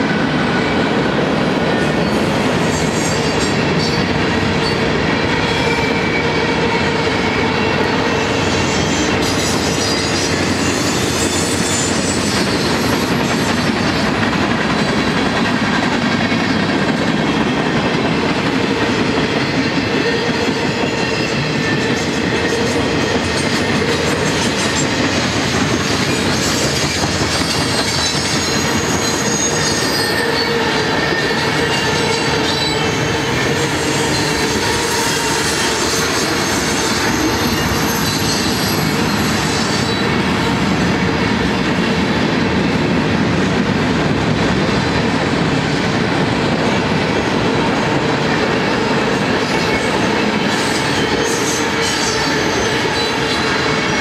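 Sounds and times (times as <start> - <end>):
freight train wheels rumbling: 0.0 - 54.0
high wheel squeals: 25.8 - 40.0.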